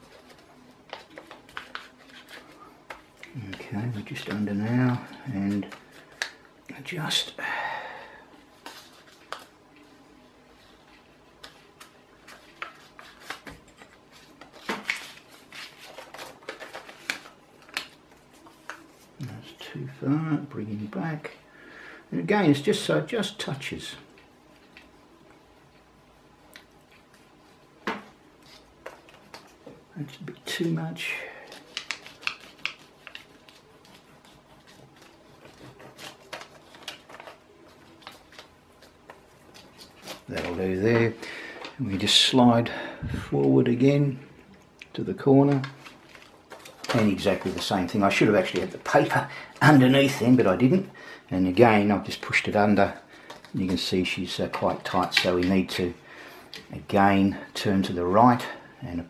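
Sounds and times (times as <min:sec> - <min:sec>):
paper rustling: 0:00.0 - 0:06.4, 0:08.4 - 0:19.6, 0:28.4 - 0:42.4, 0:45.4 - 0:50.9, 0:51.5 - 0:58.0.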